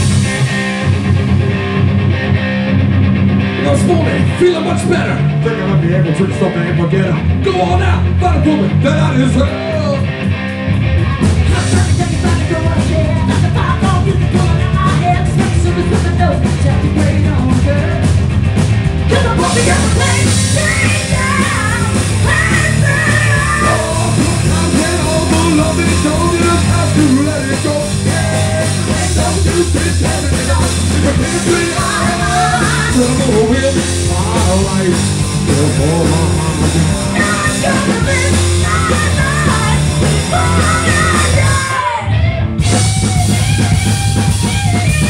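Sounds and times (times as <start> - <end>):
live rock band playing: 0.0 - 45.0
person singing: 11.1 - 18.0, 19.1 - 42.3.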